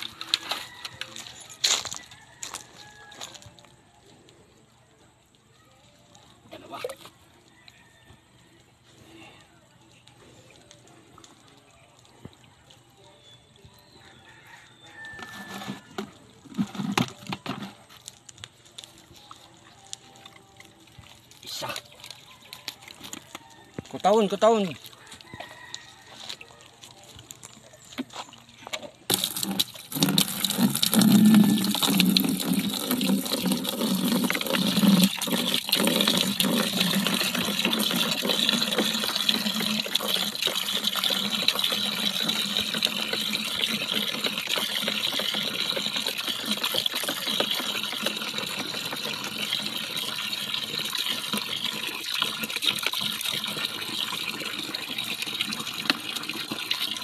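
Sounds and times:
water running into plastic drum: 14.7 - 18.2, 29.1 - 57.0.

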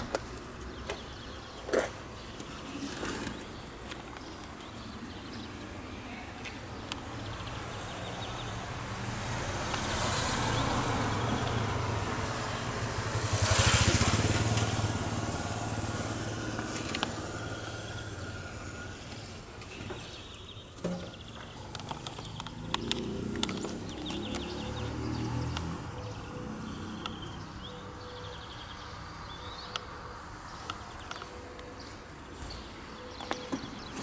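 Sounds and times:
vehicle passing by: 7.7 - 19.5, 21.6 - 29.6.

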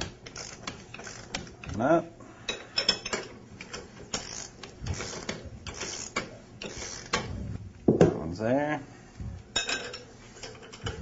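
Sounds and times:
ratchet wrench clicking: 0.3 - 1.5, 4.1 - 7.2.

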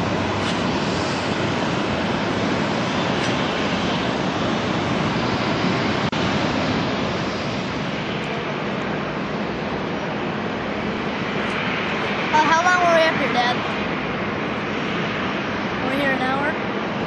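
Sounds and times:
turboprop plane engines roaring: 0.0 - 17.0.

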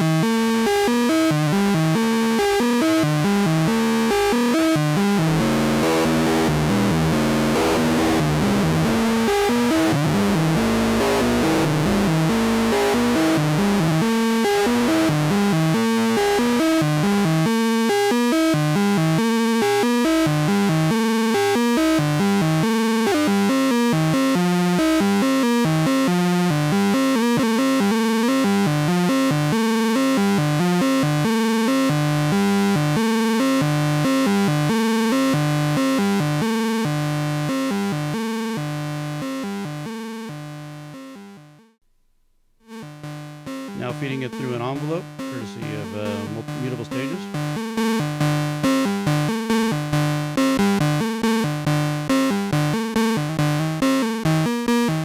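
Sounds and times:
synth notes sequence: 3.5 - 20.2, 42.7 - 49.8.

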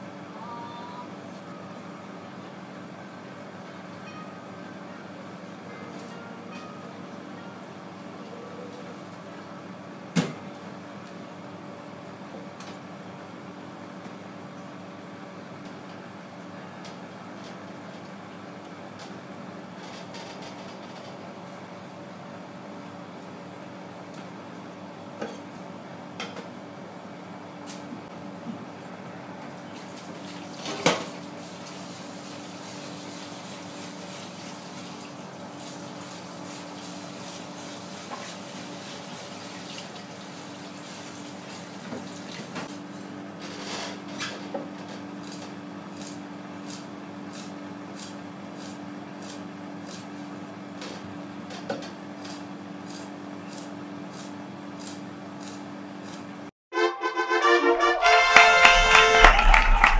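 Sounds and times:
steady hum: 57.4 - 59.9.

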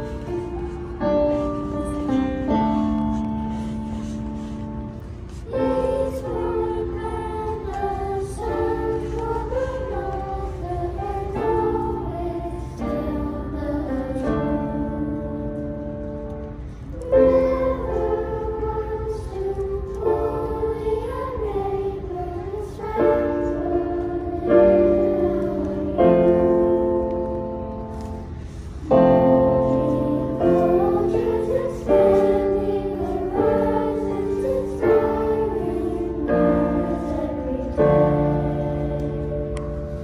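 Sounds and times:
children's choir singing: 0.0 - 40.0
piano chords: 0.0 - 40.0.

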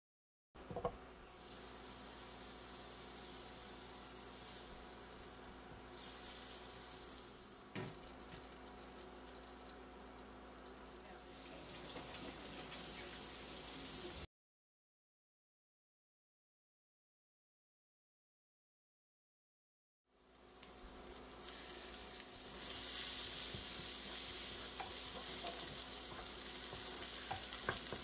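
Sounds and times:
butter sizzling in pan: 1.2 - 14.3, 20.2 - 28.0.

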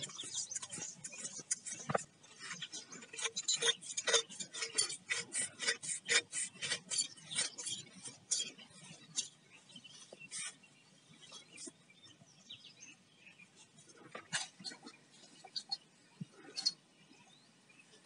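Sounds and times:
pipe fittings rasping being screwed: 0.0 - 9.4.

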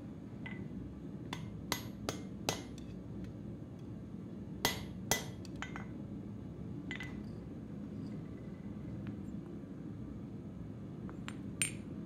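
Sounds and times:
hammer striking steel on anvil: 1.3 - 2.8, 4.6 - 5.9.

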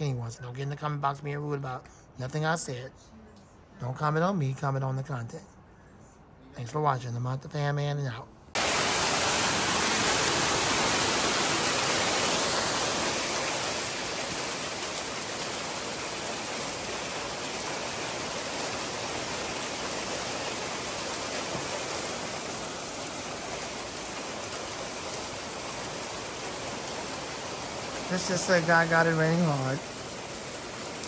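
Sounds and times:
heavy rain falling: 8.6 - 31.0.

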